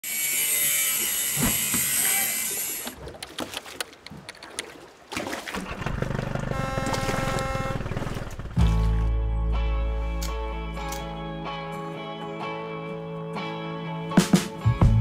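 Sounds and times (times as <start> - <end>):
steady multi-note tone: 6.4 - 8.4.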